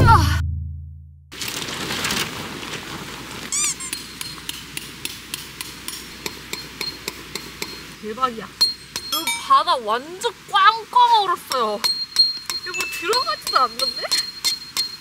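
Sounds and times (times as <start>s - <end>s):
hammer striking metal stake: 3.8s - 8.0s, 8.6s - 9.6s, 11.5s - 15.0s.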